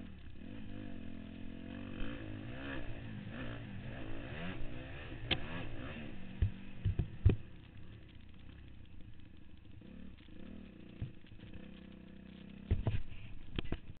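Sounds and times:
dirt bike engine running: 0:00.0 - 0:14.0
thuds buffeting the microphone: 0:12.6 - 0:14.0.

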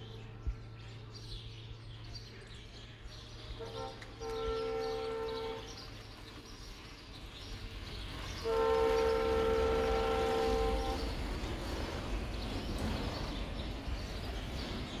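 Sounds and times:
train horn blast: 0:03.6 - 0:05.8, 0:08.4 - 0:11.2.

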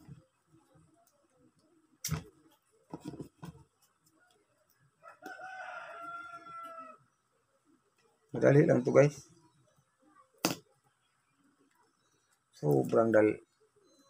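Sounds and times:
rooster crowing: 0:05.0 - 0:07.1.

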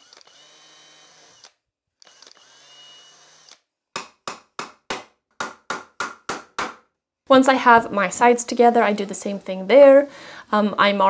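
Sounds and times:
cordless drill boring wood: 0:00.0 - 0:03.7
hammer driving nail into wood: 0:03.9 - 0:06.9.

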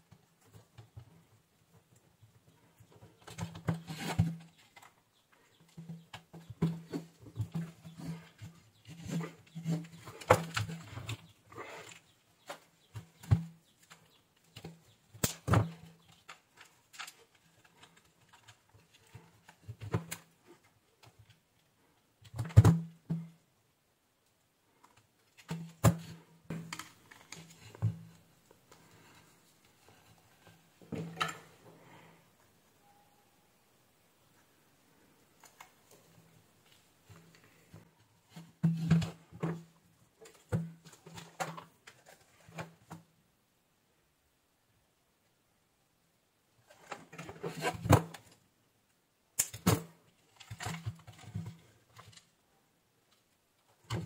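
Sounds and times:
hands rustling wires: 0:01.8 - 0:22.5, 0:24.7 - 0:32.0.

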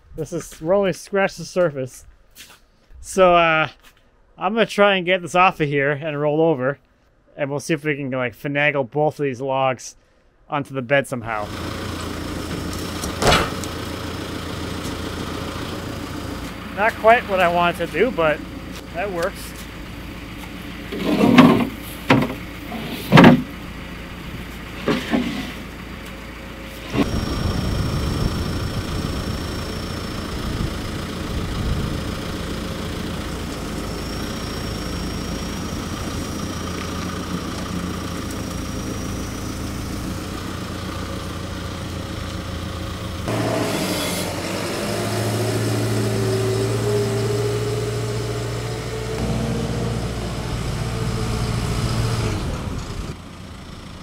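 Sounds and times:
machine engine running: 0:11.4 - 0:54.0.

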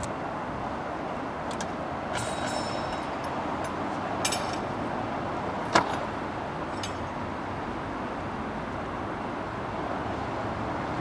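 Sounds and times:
vehicle hum: 0:00.0 - 0:11.0
metallic jingles and clinks: 0:02.1 - 0:04.7, 0:06.7 - 0:07.2.

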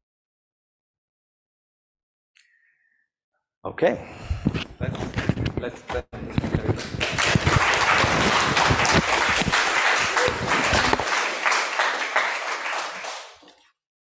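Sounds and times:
audience applauding: 0:06.8 - 0:13.6.

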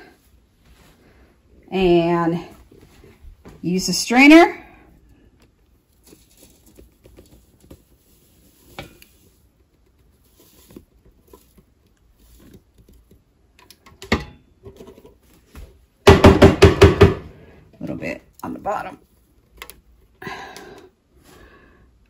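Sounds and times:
faint clicks and rustles: 0:04.9 - 0:14.0.

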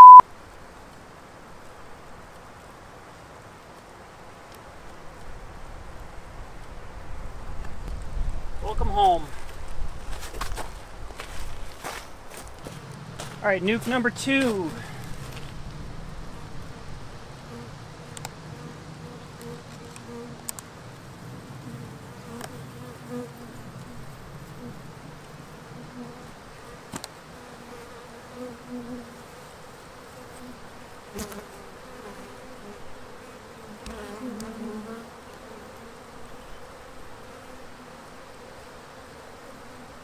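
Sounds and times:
bees buzzing: 0:11.8 - 0:40.0.

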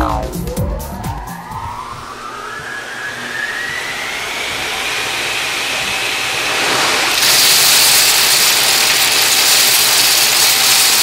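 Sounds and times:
faint rising whistle: 0:00.0 - 0:05.9.

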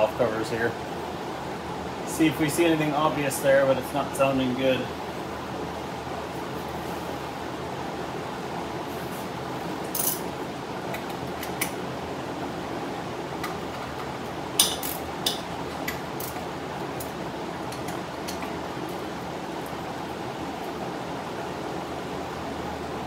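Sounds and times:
shop fan rushing: 0:00.0 - 0:23.0
ratchet clinking on metal: 0:09.9 - 0:10.2.

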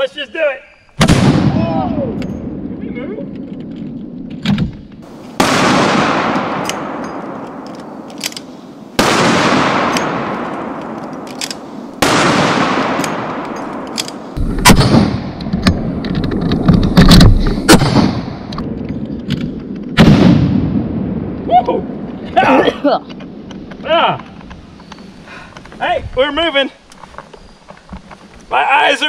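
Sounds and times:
heavy rifle shots with echo: 0:01.0 - 0:02.8, 0:05.0 - 0:16.0, 0:16.7 - 0:19.0, 0:19.9 - 0:22.1
sharp loud blasts: 0:01.0 - 0:03.2, 0:04.6 - 0:10.9, 0:12.0 - 0:13.4, 0:14.1 - 0:16.0, 0:16.6 - 0:18.8, 0:19.9 - 0:22.7.

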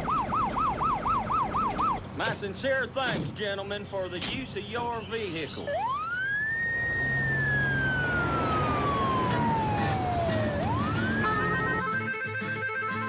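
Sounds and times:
emergency vehicle siren wailing: 0:00.0 - 0:02.2, 0:05.5 - 0:13.0
music: 0:10.2 - 0:13.0.

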